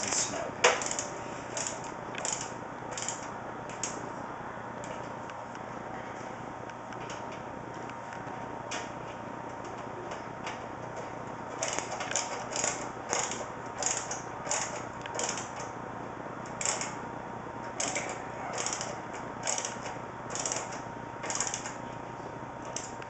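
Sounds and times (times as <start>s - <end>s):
screwdriver scratchy clicks: 0.8s - 4.0s, 17.8s - 21.8s.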